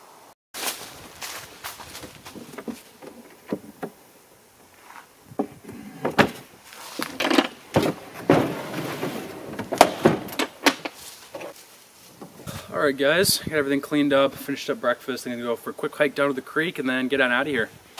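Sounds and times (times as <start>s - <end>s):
wooden knocks and clunks: 1.9s - 4.0s, 5.3s - 11.5s
wooden drawer scraping: 5.4s - 11.5s.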